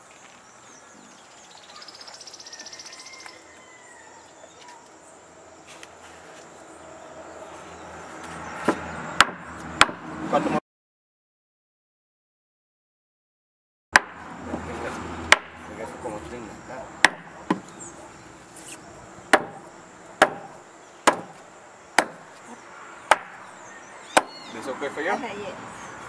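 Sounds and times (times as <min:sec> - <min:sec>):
machete chopping fish on wood: 0:08.7 - 0:10.0, 0:14.0 - 0:14.2, 0:15.3 - 0:15.6, 0:17.0 - 0:17.7, 0:19.3 - 0:19.6, 0:20.2 - 0:20.5, 0:21.1 - 0:21.4, 0:22.0 - 0:22.3, 0:23.1 - 0:23.4.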